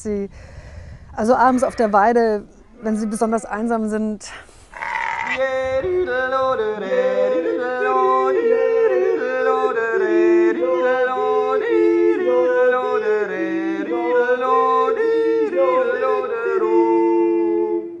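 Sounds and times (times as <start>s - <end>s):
voices yodeling: 4.8s - 18.0s.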